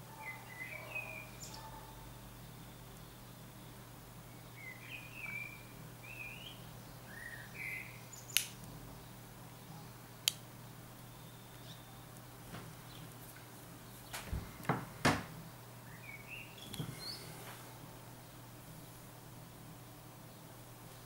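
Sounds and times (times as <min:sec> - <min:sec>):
bird chirps: 0:00.2 - 0:03.7, 0:04.3 - 0:08.4, 0:11.0 - 0:12.2, 0:15.8 - 0:17.4.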